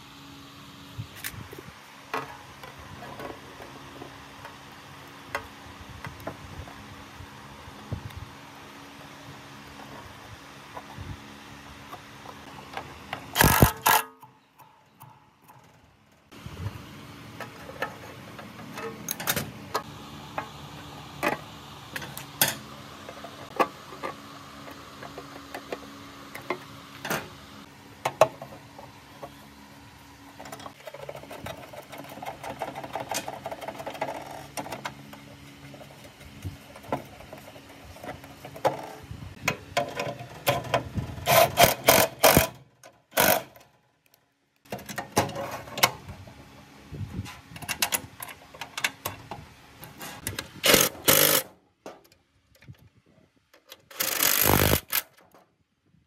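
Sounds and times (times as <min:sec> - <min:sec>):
metal parts and tools clicking: 0:13.3 - 0:15.8, 0:47.6 - 0:52.8, 0:53.5 - 0:55.4.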